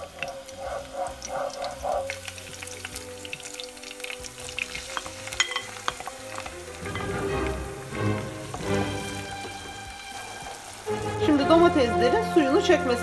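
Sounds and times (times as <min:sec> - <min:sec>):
garlic sizzling in oil: 0:00.0 - 0:13.0
wooden spoon stirring: 0:03.3 - 0:11.6.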